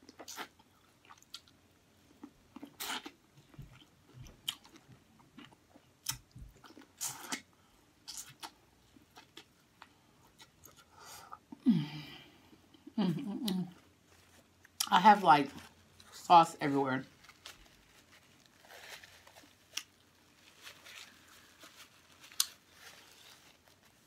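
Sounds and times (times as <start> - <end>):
person chewing corn: 0.0 - 11.6, 17.3 - 24.0.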